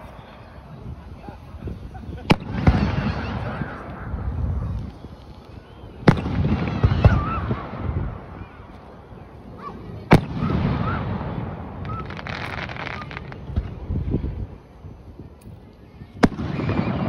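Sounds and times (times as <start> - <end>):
firework bangs with echo: 2.1 - 4.8, 6.0 - 8.4, 10.0 - 13.8, 16.2 - 17.0
small firework pops: 2.1 - 9.0, 10.0 - 13.9, 15.2 - 17.0.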